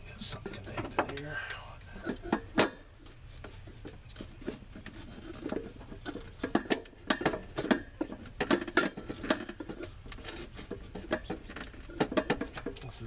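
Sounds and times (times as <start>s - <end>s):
hose connection clicks and creaks: 0.5s - 13.0s.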